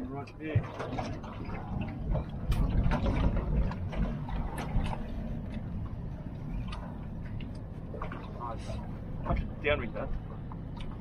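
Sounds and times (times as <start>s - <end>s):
low uneven rumble: 0.0s - 11.0s.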